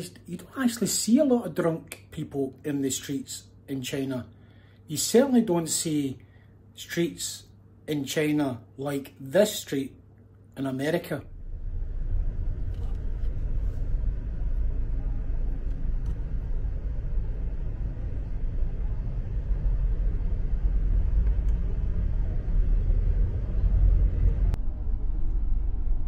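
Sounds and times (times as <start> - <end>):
low traffic rumble: 11.2 - 26.0.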